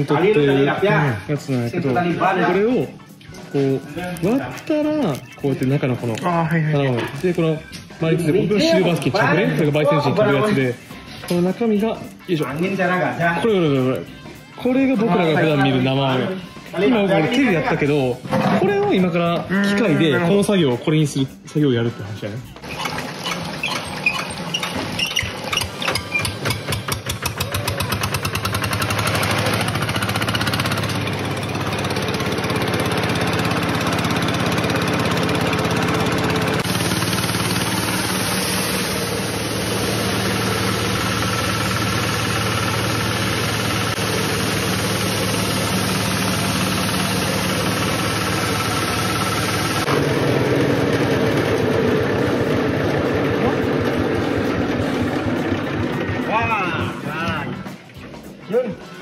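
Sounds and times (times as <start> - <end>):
diesel engine starting and running: 22.5 - 57.9.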